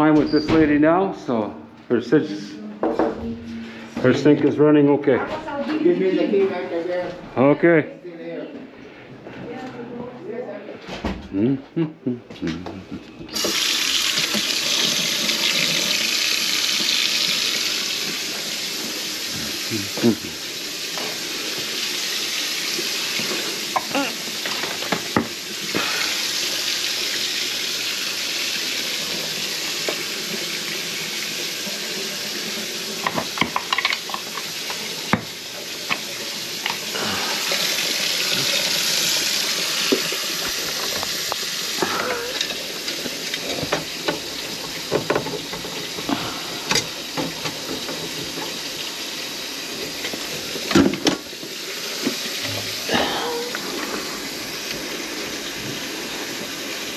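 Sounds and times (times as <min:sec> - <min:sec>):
faucet water rushing into sink: 0:13.3 - 0:56.9.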